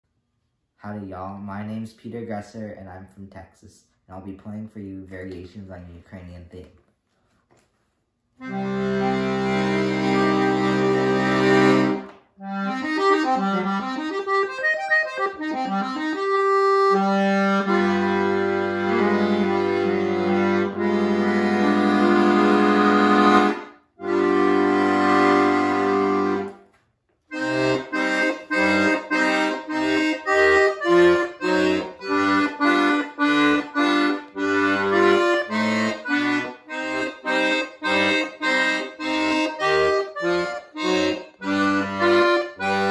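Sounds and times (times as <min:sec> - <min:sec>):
button accordion playing: 0:08.4 - 0:26.7, 0:27.3 - 0:42.9.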